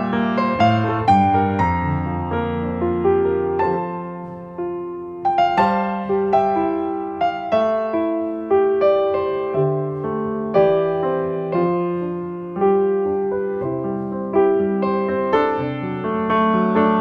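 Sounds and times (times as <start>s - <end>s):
slow piano music: 0.0s - 17.0s.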